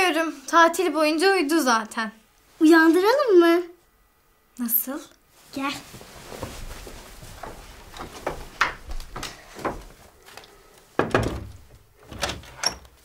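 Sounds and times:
footsteps on wooden floor: 6.0s - 11.8s
wooden door thumps: 11.0s - 12.6s.

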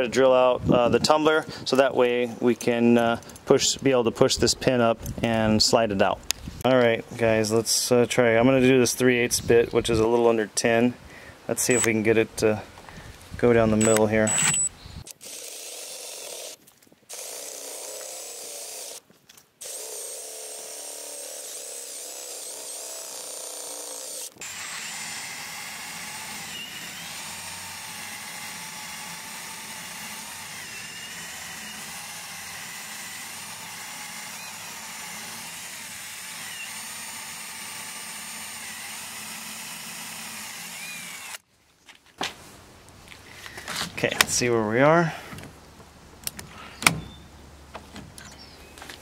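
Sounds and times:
power drill drilling metal: 11.6s - 12.0s, 13.8s - 19.0s, 19.6s - 41.4s.

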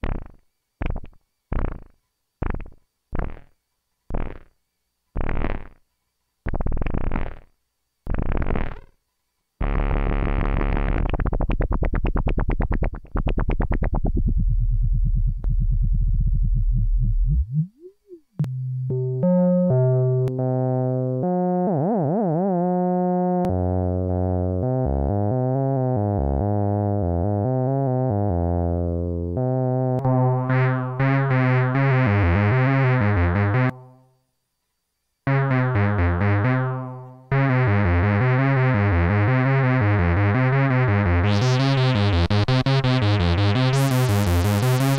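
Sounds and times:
analog synthesizer bass notes: 9.6s - 33.9s, 35.3s - 44.9s.

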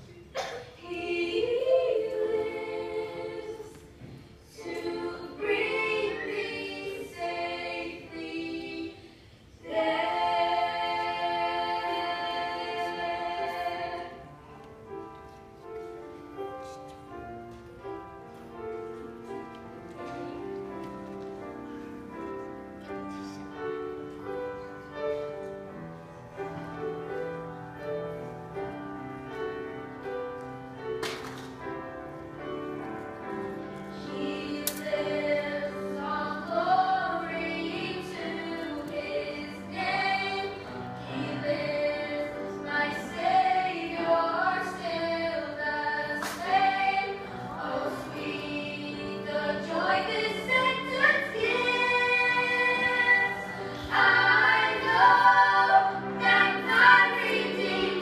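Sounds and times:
women singing together: 0.3s - 14.3s, 33.9s - 58.0s.

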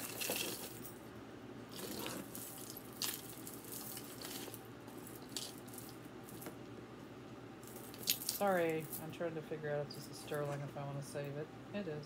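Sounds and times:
jewelry clicking and clinking: 1.8s - 6.5s, 7.6s - 9.1s.

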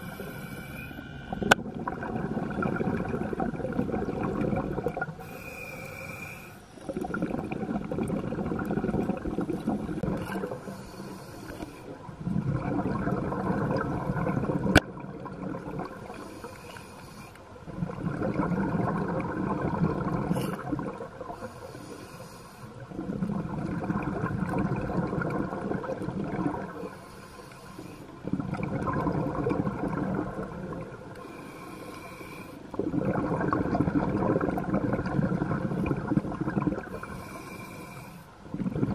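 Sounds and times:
diver breathing through regulator: 0.0s - 1.6s, 5.2s - 7.0s, 9.6s - 12.0s, 16.0s - 17.5s, 20.3s - 22.9s, 26.7s - 28.2s, 31.2s - 32.7s, 36.9s - 38.9s.

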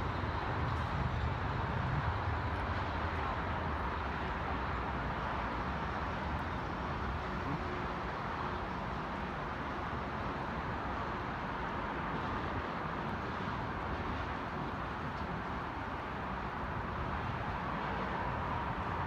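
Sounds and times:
commuter train running: 0.0s - 19.0s
highway traffic noise: 0.0s - 19.0s.

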